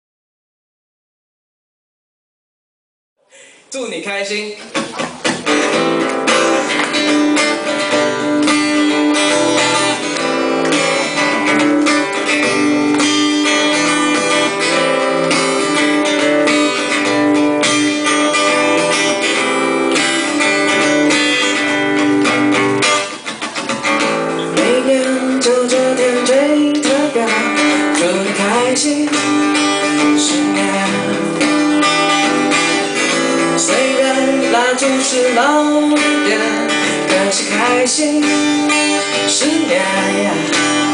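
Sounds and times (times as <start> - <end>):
acoustic guitar strumming: 4.5 - 40.9
man singing: 24.5 - 31.6, 33.5 - 40.9.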